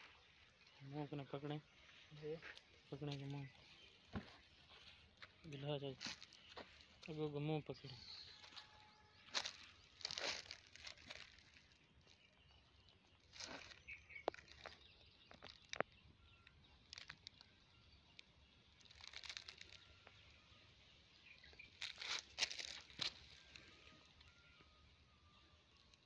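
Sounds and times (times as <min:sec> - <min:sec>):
faint bird chirps: 0:00.0 - 0:26.0.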